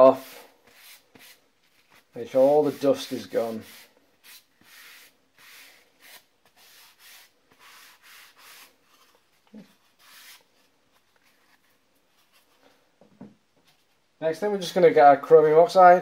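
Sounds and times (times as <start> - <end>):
rubbing strokes on wood block: 0.0 - 10.5.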